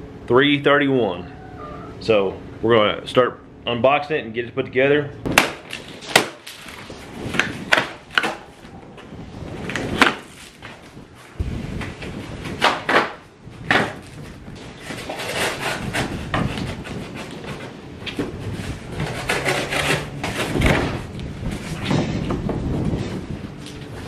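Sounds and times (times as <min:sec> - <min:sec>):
cardboard ripping and thumping: 0:05.3 - 0:08.6, 0:09.5 - 0:10.9, 0:11.8 - 0:22.9
cardboard rasping and tearing: 0:13.7 - 0:22.0.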